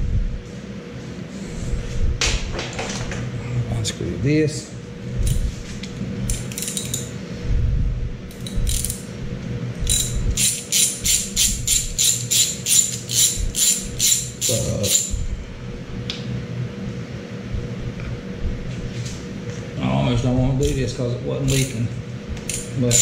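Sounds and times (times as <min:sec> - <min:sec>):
ratchet clicking: 0:06.3 - 0:07.1, 0:08.3 - 0:09.0, 0:09.8 - 0:15.2, 0:21.4 - 0:21.8, 0:22.5 - 0:23.0.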